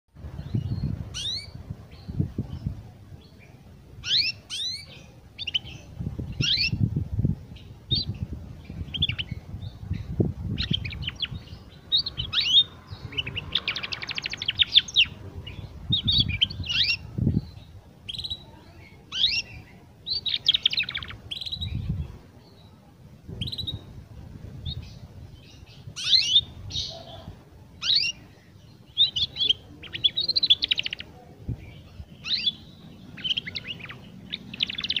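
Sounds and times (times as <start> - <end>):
canary twittering: 1.2 - 1.6, 4.0 - 6.8, 10.6 - 15.2, 19.1 - 21.8, 26.0 - 27.2, 27.8 - 28.2, 32.2 - 35.0.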